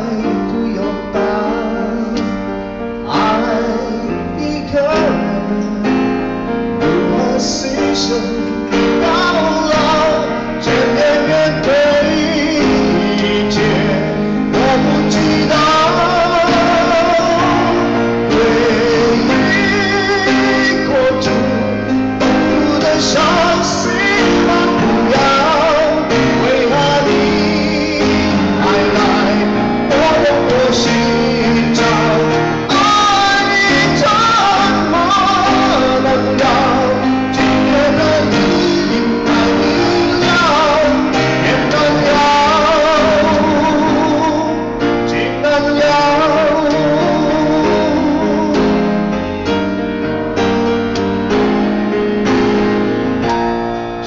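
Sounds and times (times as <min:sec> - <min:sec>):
man singing ballad with vibrato: 0:00.0 - 0:49.7
grand piano: 0:00.0 - 0:54.0.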